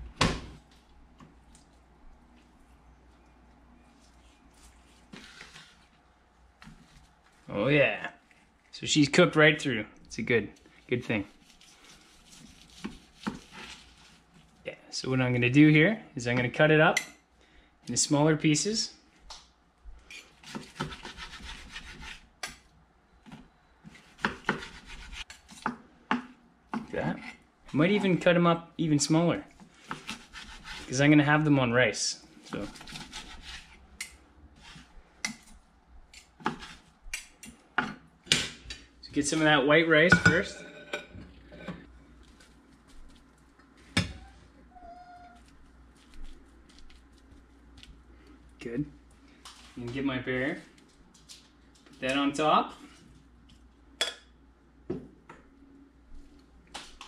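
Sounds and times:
knife scraping cutting board: 4.5s - 5.9s, 11.3s - 14.2s, 20.1s - 22.3s, 23.9s - 25.7s, 29.7s - 31.0s, 32.4s - 33.8s, 34.6s - 34.9s, 36.2s - 36.9s
knife sawing through meat: 29.9s - 30.9s.

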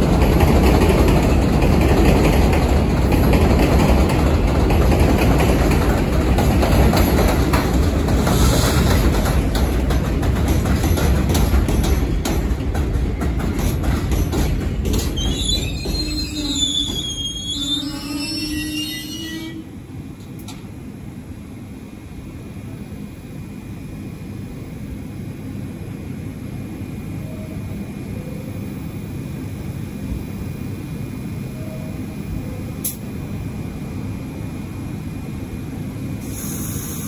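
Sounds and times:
wheels clattering over rails: 0.0s - 17.3s
subway train rumbling past: 0.0s - 37.0s
high-pitched wheel squeals: 15.2s - 19.6s.

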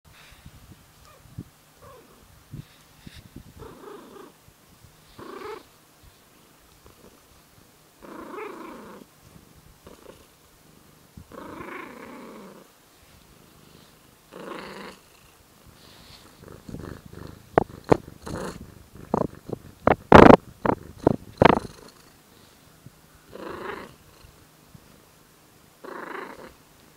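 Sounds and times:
cat growling and purring: 1.8s - 2.3s, 3.6s - 4.4s, 5.1s - 5.7s, 8.0s - 9.1s, 9.8s - 12.7s, 13.4s - 22.2s, 23.3s - 24.4s, 25.8s - 26.6s
fur rubbing on microphone: 1.8s - 7.5s, 15.7s - 21.8s.

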